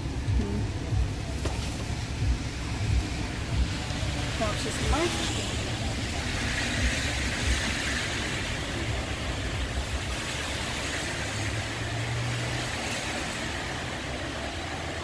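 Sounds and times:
cars on a wet road: 0.0s - 15.0s.

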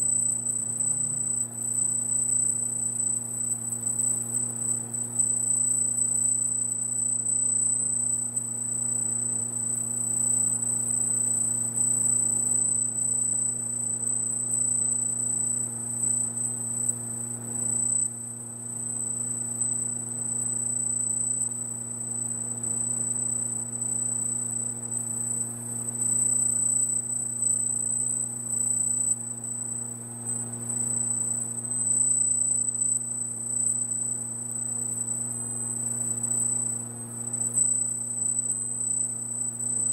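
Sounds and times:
low electrical hum: 0.0s - 6.5s
laser machine high-pitched whine: 0.0s - 39.9s.

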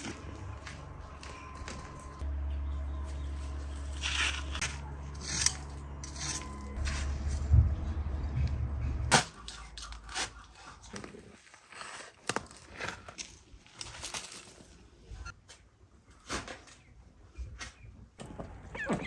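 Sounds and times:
low hum: 0.0s - 11.0s
shovel digging into soil: 3.8s - 7.1s.

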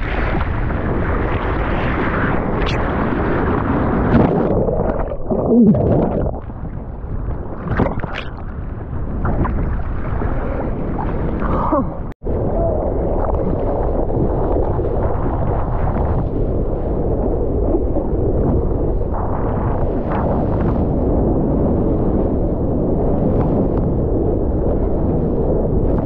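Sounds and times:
wind noise on microphone: 0.0s - 26.0s
bubbly gurgling underwater: 2.6s - 16.2s.

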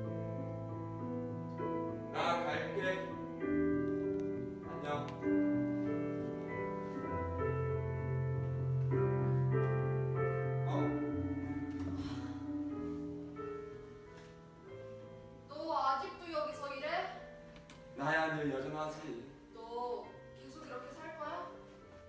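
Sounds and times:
slow piano chords: 0.0s - 22.0s.

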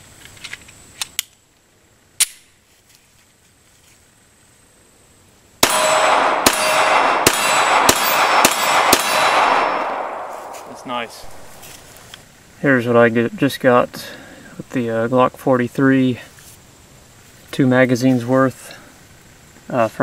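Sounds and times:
gun handling clicks: 0.2s - 1.4s
pistol shots echoing: 5.6s - 11.6s.

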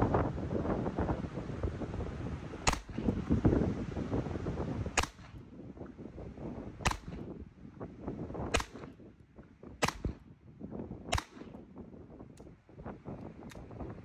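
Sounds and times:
pistol shots: 2.6s - 3.1s, 5.0s - 5.4s, 6.8s - 7.3s, 8.5s - 9.0s, 9.8s - 10.3s, 11.1s - 11.7s.

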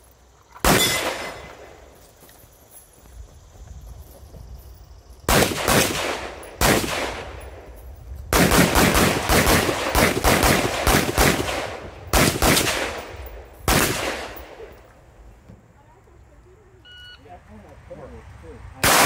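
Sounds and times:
gunshots echoing: 0.6s - 1.8s, 5.3s - 7.7s, 8.3s - 14.8s.

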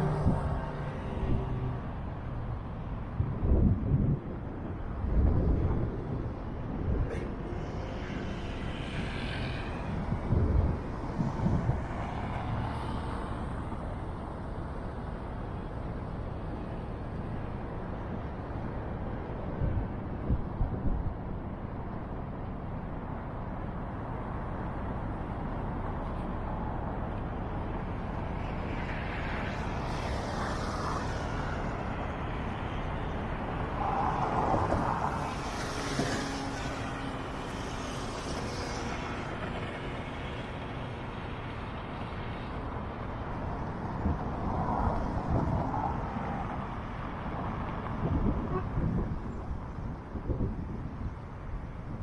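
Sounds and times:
low traffic rumble: 0.0s - 52.0s.

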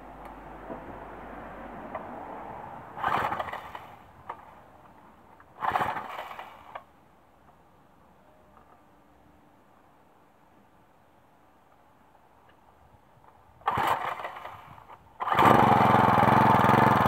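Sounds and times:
recoil starter cord pulls: 3.0s - 4.5s, 5.6s - 6.9s, 13.7s - 17.0s.

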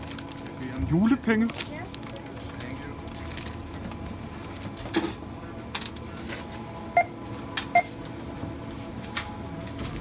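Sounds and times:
barcode scanner beeping: 6.9s - 8.0s.

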